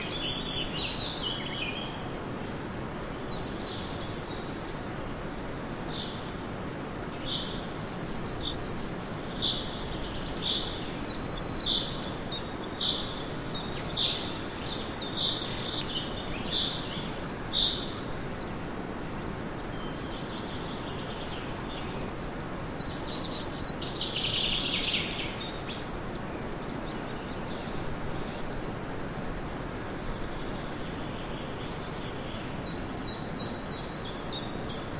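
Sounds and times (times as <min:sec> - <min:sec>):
bird chirping: 0:00.0 - 0:02.0, 0:07.2 - 0:18.0, 0:22.8 - 0:26.0
steady outdoor hiss: 0:00.0 - 0:34.9.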